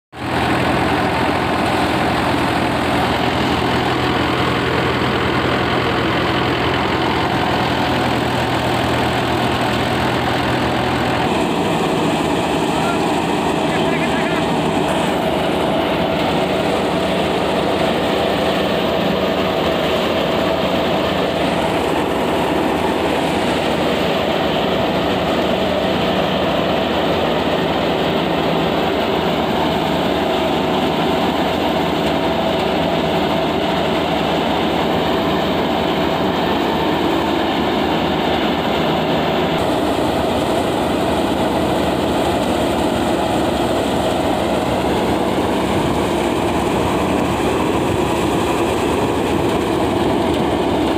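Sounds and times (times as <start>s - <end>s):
tractor engine drone: 0.1s - 50.9s.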